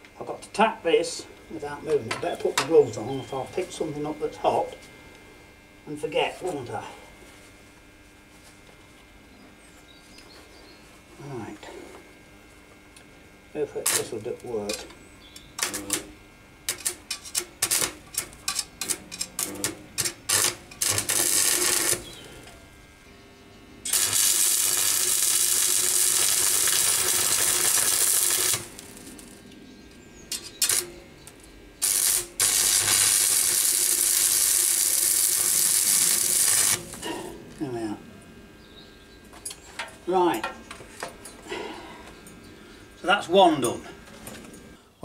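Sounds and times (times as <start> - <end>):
arc welder crackling: 0.0 - 9.3, 10.0 - 45.0.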